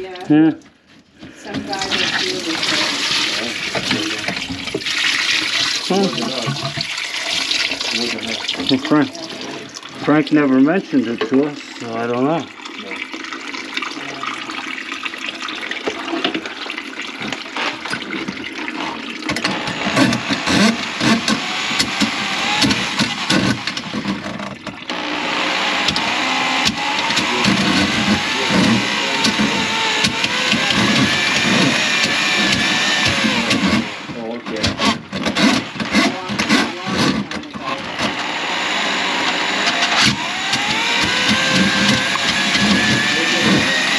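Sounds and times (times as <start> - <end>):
electric motor running: 1.5 - 6.8, 7.6 - 12.2, 18.8 - 43.9
water splashing in a sink: 1.6 - 24.9.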